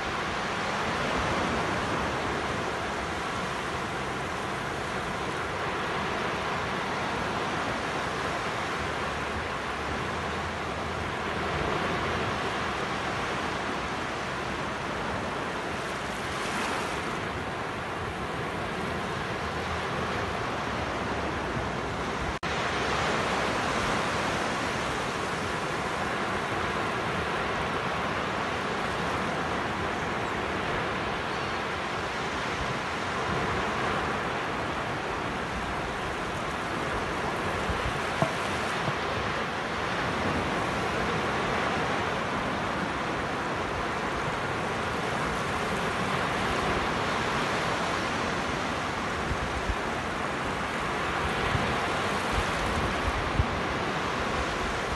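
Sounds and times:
waves breaking on a beach: 0.0 - 54.9.

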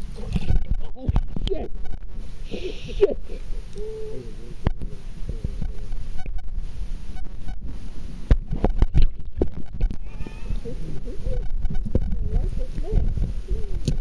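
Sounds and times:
muffled underwater rumble: 0.0 - 14.0.

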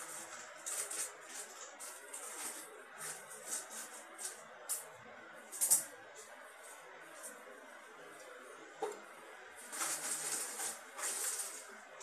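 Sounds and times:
plastic crinkling: 0.0 - 4.4, 9.6 - 11.7.

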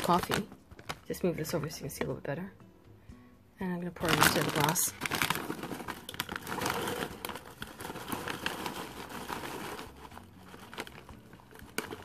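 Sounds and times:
snack bag crinkling: 0.0 - 1.1, 4.0 - 12.0
popcorn clicking against glass: 4.2 - 12.0.

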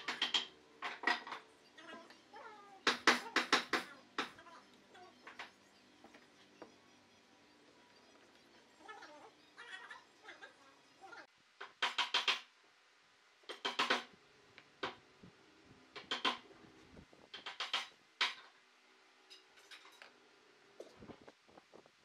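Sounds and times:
wooden blocks knocking: 0.0 - 1.4, 2.9 - 4.4, 11.6 - 12.5, 13.5 - 14.1, 16.0 - 16.4, 17.3 - 18.4.

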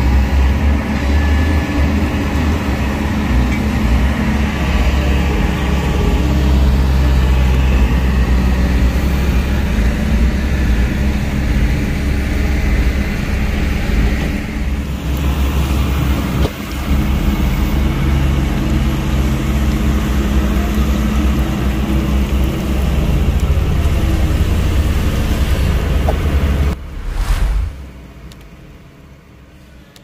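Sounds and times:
diesel engine running loudly: 0.0 - 27.2.

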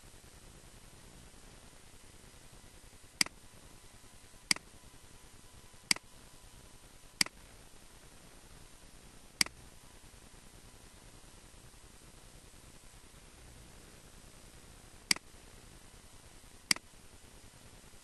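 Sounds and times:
faint steady hiss: 0.0 - 18.0
computer mouse clicks: 4.5 - 4.7, 15.1 - 15.3, 16.7 - 16.9.

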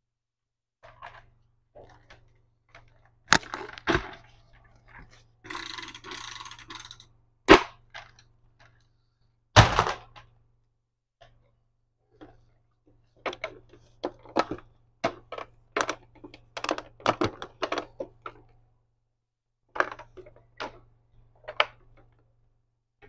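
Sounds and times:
plastic toy clacks and knocks: 0.8 - 4.3, 4.9 - 8.8, 13.2 - 18.5, 19.7 - 22.1
plastic rattling: 0.8 - 7.0.

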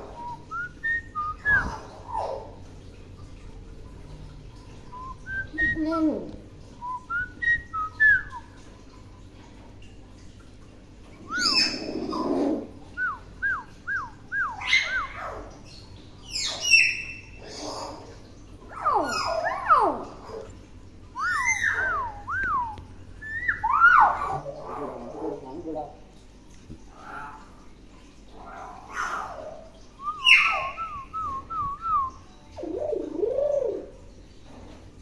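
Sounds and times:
myna whistling and calling: 0.2 - 2.3, 21.2 - 24.4, 30.0 - 32.2.

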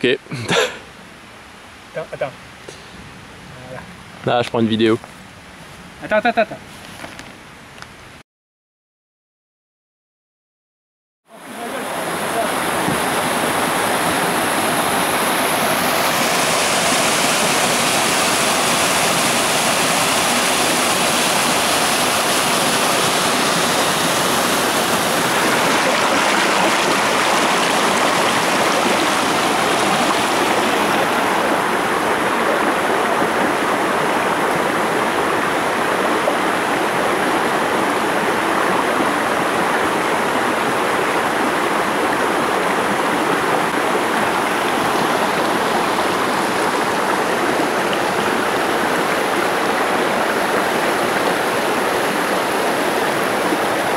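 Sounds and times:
stream water rushing over rocks: 11.3 - 53.9.

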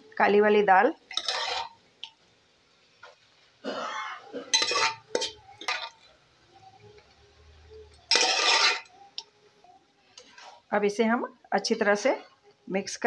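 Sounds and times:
spoon scraping a steel pot: 1.1 - 1.8, 4.5 - 6.0, 8.1 - 8.9.

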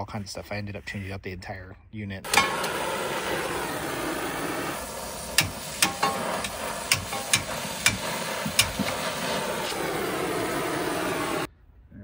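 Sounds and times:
brazing torch hissing: 2.3 - 11.5.

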